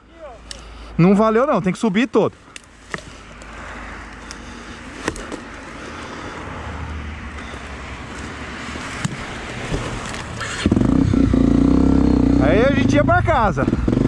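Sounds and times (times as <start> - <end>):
motorcycle engine revving: 10.0 - 14.0.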